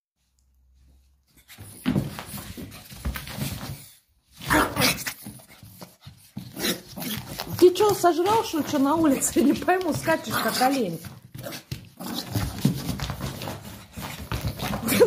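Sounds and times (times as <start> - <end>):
dog making rough noises: 4.4 - 7.8.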